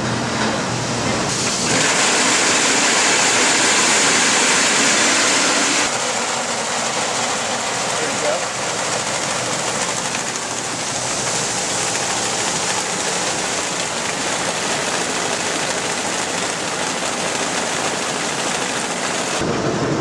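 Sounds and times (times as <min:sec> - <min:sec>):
feed mill machinery running: 0:00.0 - 0:20.0
grain pouring into hopper: 0:01.3 - 0:19.5.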